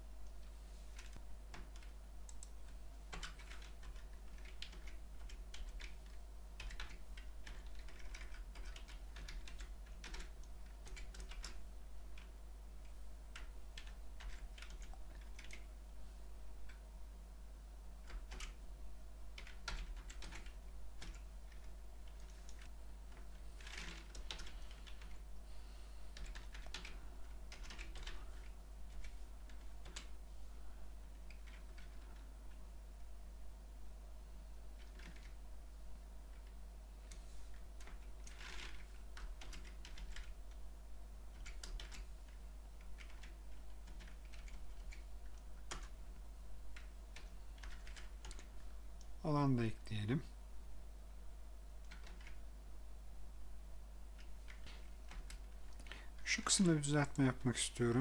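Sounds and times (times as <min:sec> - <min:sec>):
steady low hum: 0:00.0 - 0:58.0
computer keyboard typing: 0:01.0 - 0:15.7, 0:18.0 - 0:18.6, 0:19.3 - 0:25.2, 0:26.1 - 0:30.2, 0:31.1 - 0:32.3, 0:34.8 - 0:35.4, 0:37.1 - 0:40.6, 0:41.3 - 0:46.0, 0:46.7 - 0:48.6, 0:51.8 - 0:52.4, 0:54.1 - 0:56.0.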